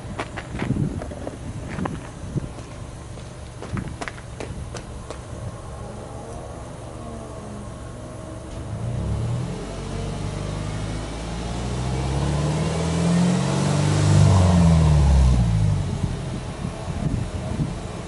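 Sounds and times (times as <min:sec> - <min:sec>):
car engine revving: 0:08.4 - 0:16.8.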